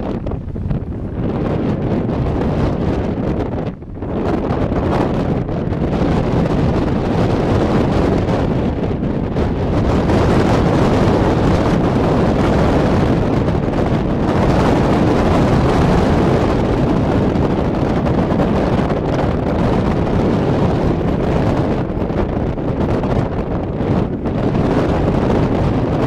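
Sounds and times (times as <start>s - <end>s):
strong wind on microphone: 0.0s - 26.0s.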